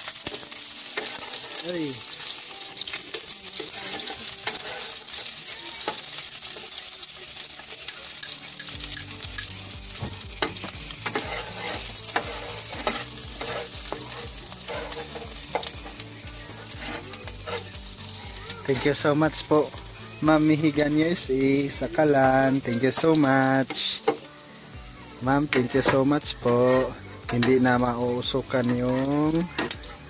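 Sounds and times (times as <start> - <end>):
aromatics sizzling in oil: 0.0 - 30.0
spatula scraping and tapping a pan: 0.1 - 1.6, 2.2 - 6.7, 7.6 - 16.0, 16.6 - 19.0.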